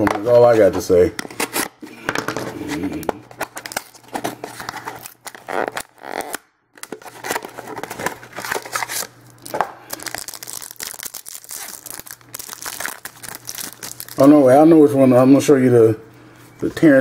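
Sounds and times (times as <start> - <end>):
foil wrapper crinkling and tearing: 3.2 - 14.6.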